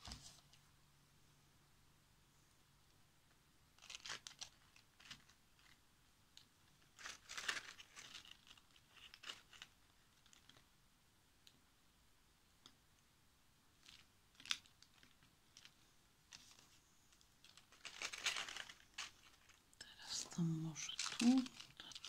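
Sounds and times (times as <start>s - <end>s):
dry leaves crackling rustles: 17.4s - 19.6s, 20.4s - 22.0s.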